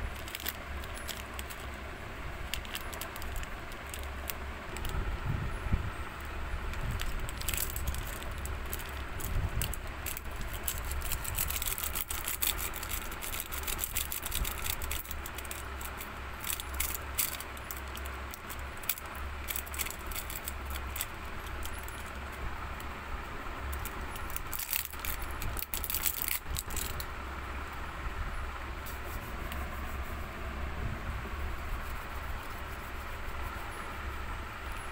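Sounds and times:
plastic wrappers crinkling: 0:00.0 - 0:05.0, 0:06.7 - 0:22.2, 0:23.7 - 0:27.1
low steady hum: 0:00.0 - 0:34.9.

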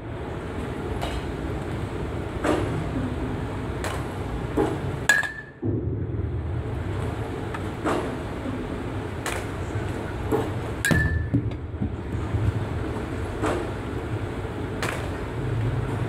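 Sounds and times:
metal bat hitting ball: 0:03.8 - 0:05.8, 0:10.8 - 0:11.5
steady low rumble: 0:05.6 - 0:16.0.

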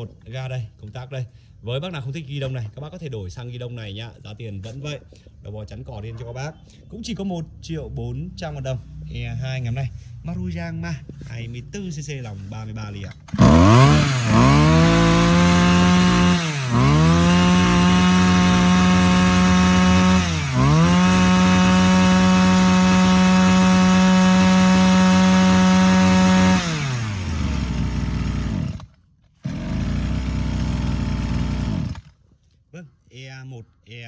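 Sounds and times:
low steady engine: 0:06.6 - 0:32.2
brush cutter engine running: 0:13.2 - 0:32.2.

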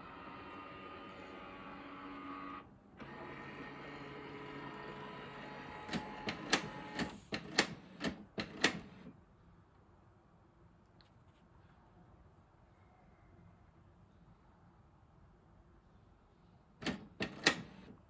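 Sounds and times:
printer motor whir: 0:00.0 - 0:09.1, 0:16.8 - 0:18.0
printer sharp clacks: 0:05.6 - 0:09.1, 0:16.8 - 0:17.9.

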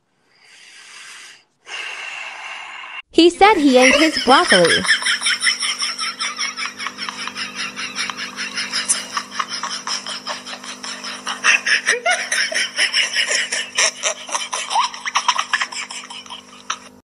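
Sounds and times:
steady low hum: 0:03.2 - 0:17.0
person laughing hard: 0:03.7 - 0:17.0.

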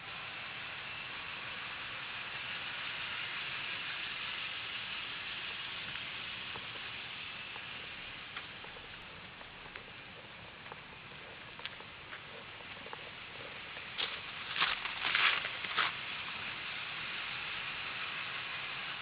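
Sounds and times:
steady hiss: 0:00.0 - 0:19.0
faint ticks: 0:08.3 - 0:16.0.

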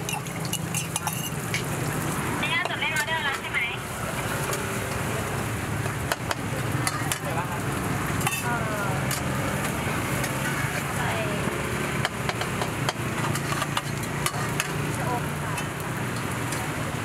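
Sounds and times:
utensils clicking and scraping: 0:00.0 - 0:01.7, 0:12.2 - 0:14.9.

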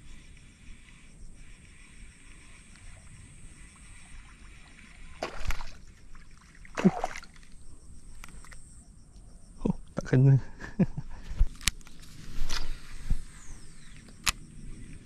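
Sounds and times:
insects buzzing: 0:00.0 - 0:15.0
fish splashing on water surface: 0:05.2 - 0:07.5.

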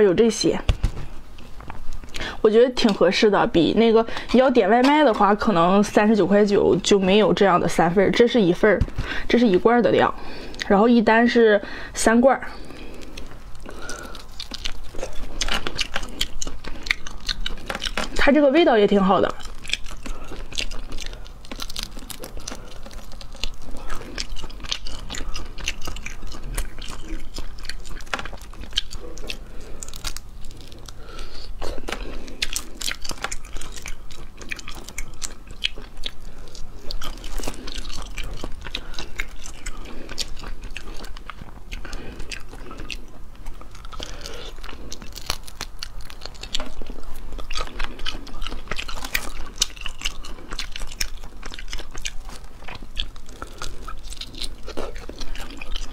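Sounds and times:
wet chewing: 0:12.3 - 0:55.9.

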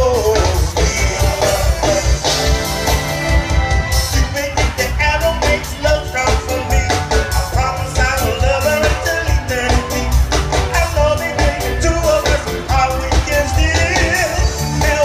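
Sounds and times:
live band playing: 0:00.0 - 0:15.0
person singing: 0:00.0 - 0:15.0.

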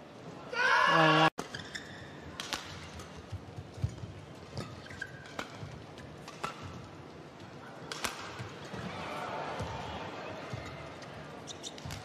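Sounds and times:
shoes squeaking on court: 0:01.4 - 0:02.3, 0:02.9 - 0:06.7, 0:10.4 - 0:12.0
rackets striking shuttlecock: 0:02.2 - 0:06.9, 0:07.9 - 0:08.6.

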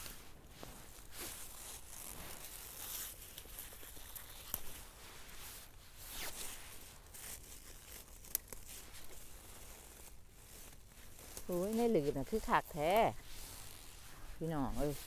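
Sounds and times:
crackles: 0:00.0 - 0:15.0
plants rustling and tearing: 0:00.0 - 0:15.0.

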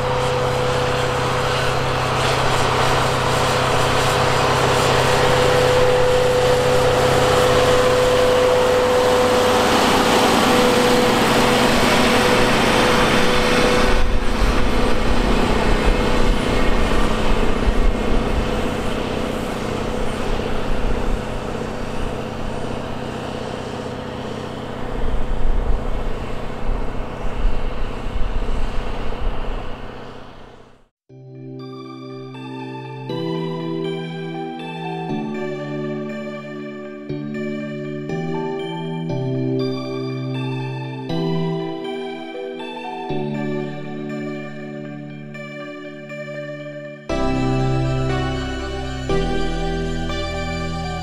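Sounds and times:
low rumbling gusts: 0:00.0 - 0:22.7
steady whine: 0:00.0 - 0:30.8, 0:31.6 - 0:51.0
tractor diesel engine under load: 0:00.0 - 0:30.9.

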